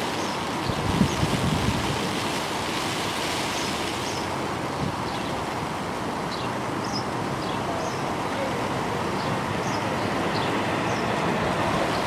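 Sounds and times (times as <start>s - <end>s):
wind hiss on microphone: 0.0s - 12.0s
diesel train approaching: 7.2s - 12.0s.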